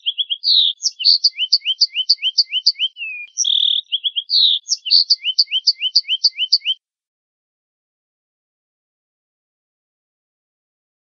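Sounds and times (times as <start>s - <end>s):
finch singing: 0.0s - 6.8s.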